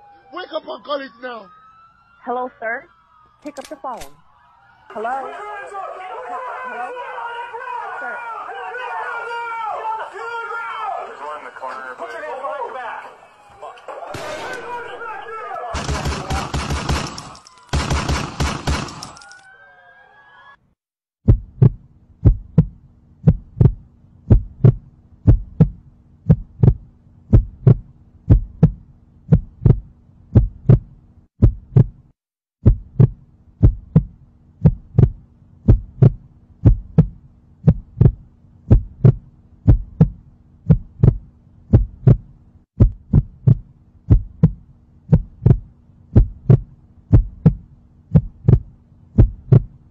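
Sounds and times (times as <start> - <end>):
gunfire burst: 14.2 - 15.0, 15.7 - 19.2
heartbeat thumps: 21.2 - 49.8.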